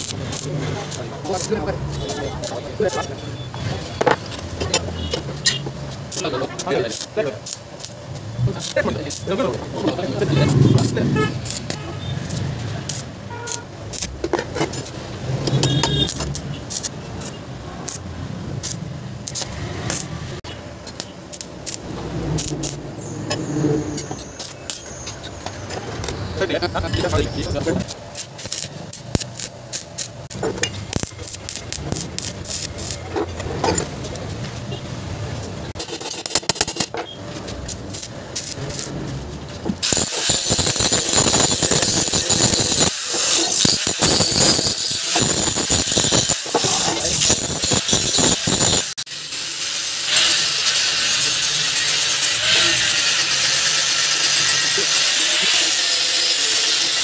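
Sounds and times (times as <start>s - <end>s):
sharp welding pops: 0.0s - 3.1s, 4.2s - 23.4s, 24.0s - 26.2s, 27.0s - 34.6s, 36.3s - 49.0s
welding arc crackling and sizzling: 0.0s - 57.0s
angle grinder grinding metal: 20.8s - 34.2s, 39.8s - 57.0s.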